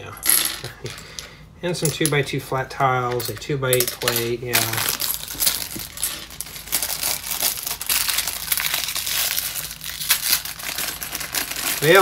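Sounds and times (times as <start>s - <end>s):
plastic bag crinkling: 4.0s - 12.0s.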